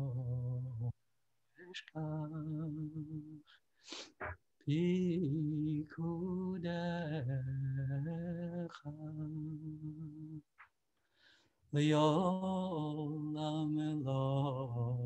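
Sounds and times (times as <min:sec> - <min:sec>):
man singing unaccompanied: 0:00.0 - 0:00.9, 0:01.6 - 0:03.5, 0:04.6 - 0:10.4, 0:11.7 - 0:15.0.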